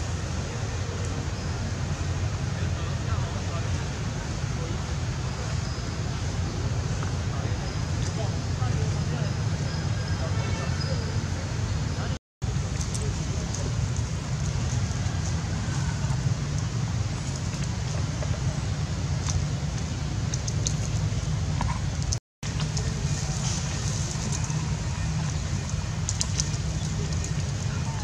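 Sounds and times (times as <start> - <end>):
steady low rumble: 11.5 - 28.0.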